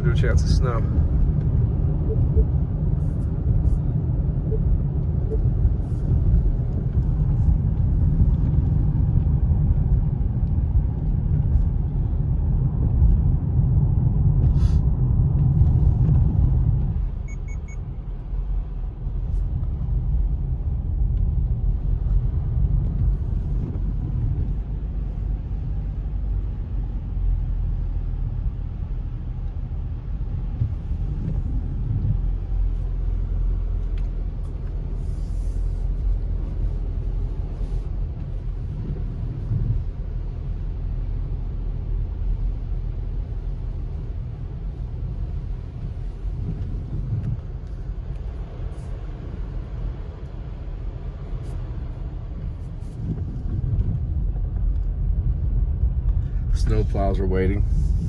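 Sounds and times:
car cabin rumble: 0.0 - 58.0
short faint beeps: 17.2 - 17.8.

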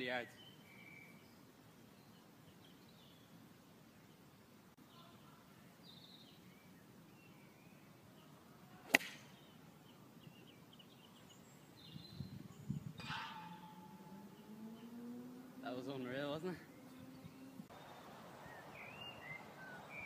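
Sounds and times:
birds chirping faintly: 0.0 - 20.0
golf club striking ball: 8.9 - 9.4, 13.0 - 14.4
ball clanging on metal bar: 13.0 - 14.2.

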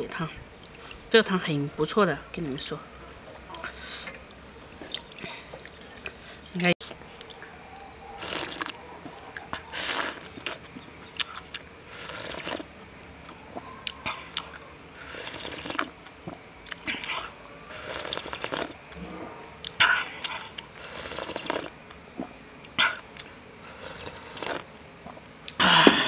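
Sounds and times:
person slurping broth: 8.2 - 8.7, 11.9 - 12.6, 15.0 - 15.9, 16.9 - 18.8, 19.6 - 21.7, 23.7 - 24.7.

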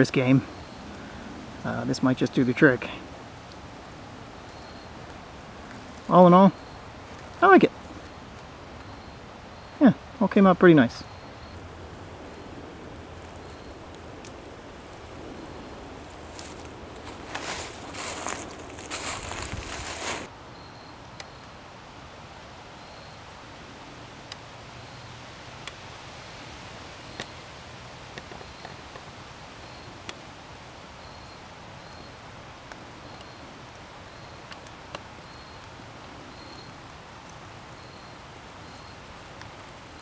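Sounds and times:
steady outdoor hiss: 0.0 - 40.0
faint high chirp: 4.5 - 5.0, 8.8 - 10.0, 10.8 - 11.7, 13.3 - 13.9, 16.3 - 21.5, 31.0 - 32.2, 33.0 - 34.6, 35.2 - 35.7, 36.3 - 36.8, 37.7 - 39.0.

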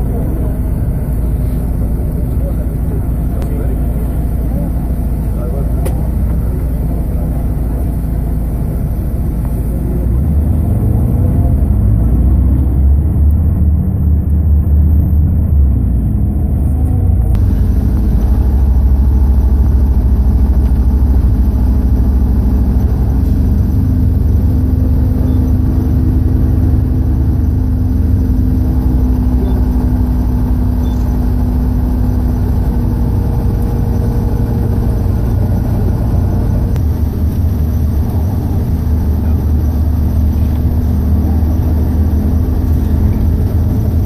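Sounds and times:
car engine and road noise: 0.0 - 44.0.

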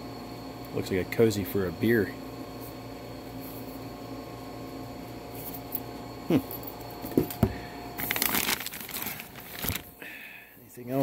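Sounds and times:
steady low hum: 0.0 - 11.0
plastic bags crinkling: 8.0 - 10.0.

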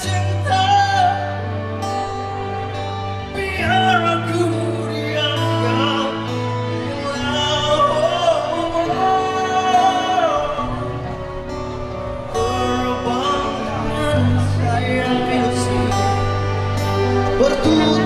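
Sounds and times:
acoustic and electric guitars: 0.0 - 18.0
bass guitar: 0.0 - 18.0
man singing: 0.0 - 18.0.

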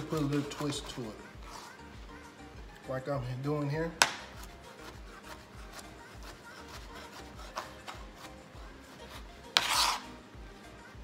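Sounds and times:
background music with low beat: 0.0 - 11.0
knife scraping tray: 9.0 - 10.1
knife slicing fried chicken: 9.1 - 10.1.

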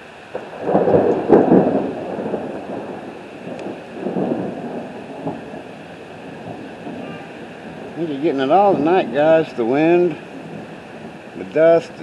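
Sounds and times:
steady rain: 0.0 - 12.0
thunder rumbling: 0.0 - 12.0
wind noise: 0.0 - 12.0.

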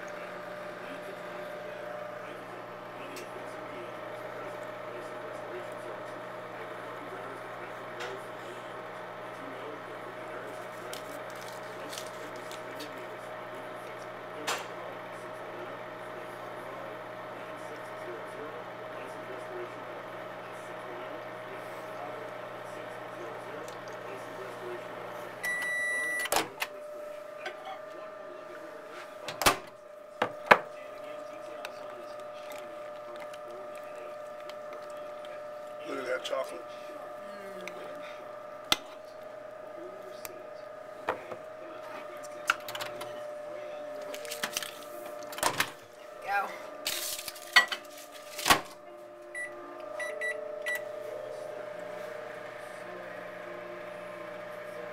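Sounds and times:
steady hum: 0.0 - 54.9
keypad beeps: 25.4 - 26.3
microwave door shutting: 29.2 - 29.8.

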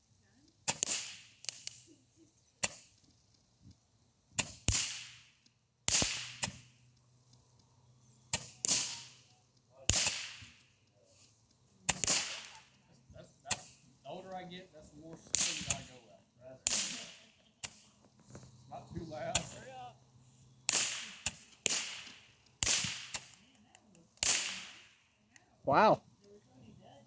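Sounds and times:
roman candle firing pops: 0.6 - 1.9, 2.6 - 3.1, 4.4 - 6.7, 8.3 - 10.7, 11.9 - 12.8, 13.4 - 13.8, 15.2 - 16.0, 16.6 - 18.5, 20.6 - 25.0.

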